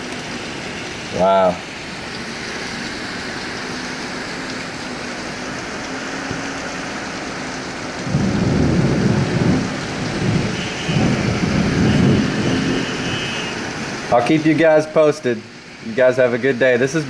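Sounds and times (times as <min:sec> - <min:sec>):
heavy rain pouring: 0:00.0 - 0:17.0
low rumble of thunder: 0:08.0 - 0:12.9.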